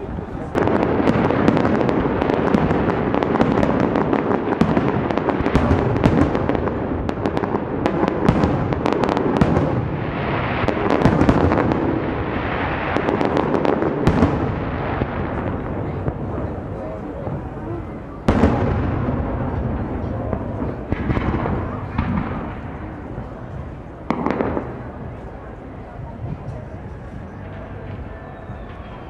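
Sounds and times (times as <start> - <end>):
fireworks crackling: 0.0 - 29.0.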